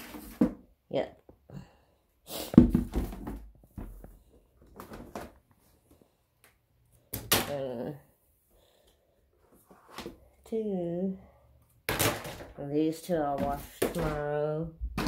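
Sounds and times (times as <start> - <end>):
knocks and rustling of handling: 2.5 - 6.1.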